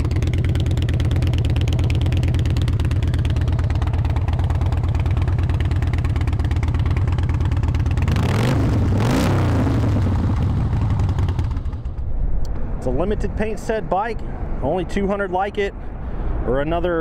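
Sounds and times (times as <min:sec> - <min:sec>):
motorcycle engine idling: 0:00.0 - 0:08.9, 0:09.7 - 0:12.1
motorcycle engine revving: 0:00.0 - 0:12.1.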